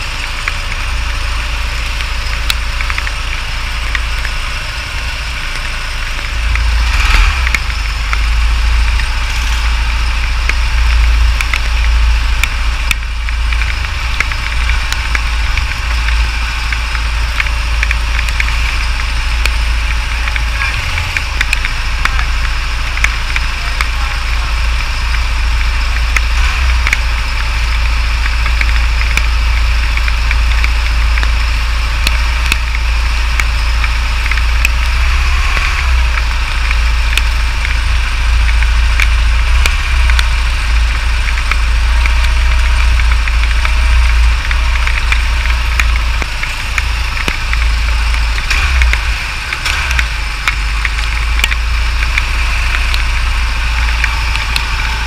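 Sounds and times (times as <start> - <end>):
go-kart engine idling: 0.0 - 55.0
light ticks: 1.8 - 4.4, 10.1 - 24.0, 24.7 - 55.0.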